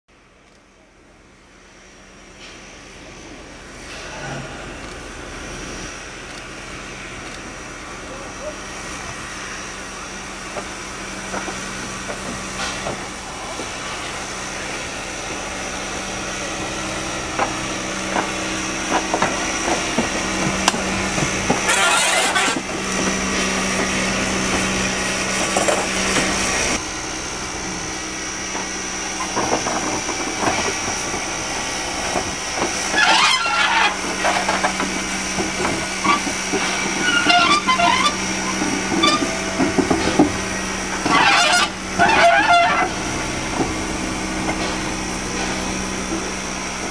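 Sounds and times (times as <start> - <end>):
loud rush of steam: 1.2 - 46.9
steam hissing: 1.5 - 46.9.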